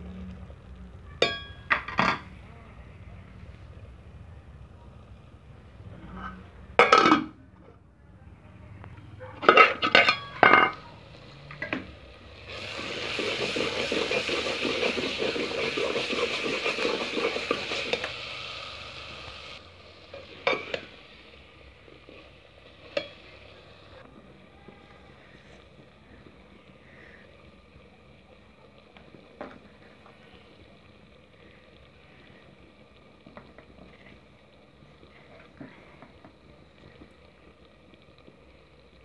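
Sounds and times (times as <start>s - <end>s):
spoon clanking against pot: 1.2s - 2.3s, 9.4s - 10.8s, 22.9s - 23.2s.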